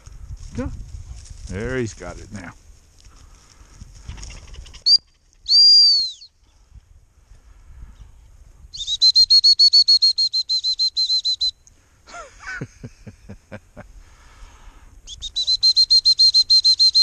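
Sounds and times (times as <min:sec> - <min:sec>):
whistle trilling short high pips: 0:04.8 - 0:06.3, 0:08.7 - 0:11.6, 0:15.1 - 0:17.0.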